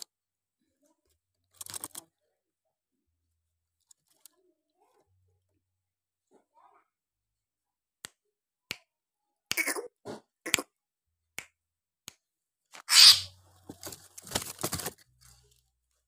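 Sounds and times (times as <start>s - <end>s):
bird harsh rasping calls: 12.8s - 13.4s.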